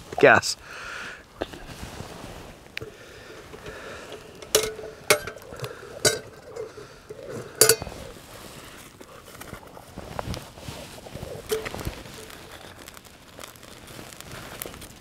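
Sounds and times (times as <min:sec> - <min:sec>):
camp oven clanking on wire grill: 0:02.7 - 0:08.4, 0:11.4 - 0:13.0.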